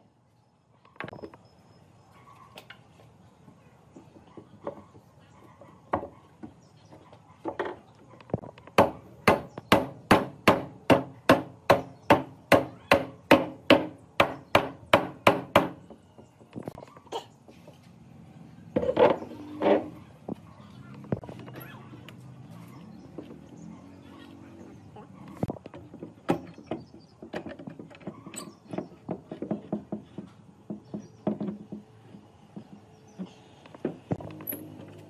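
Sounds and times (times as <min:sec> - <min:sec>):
hand tool striking wood: 0:08.6 - 0:15.9.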